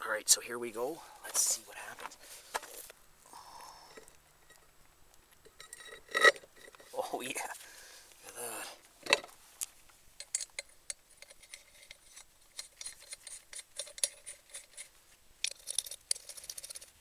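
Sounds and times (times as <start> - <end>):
lug nuts clinking on wheel studs: 5.4 - 6.9.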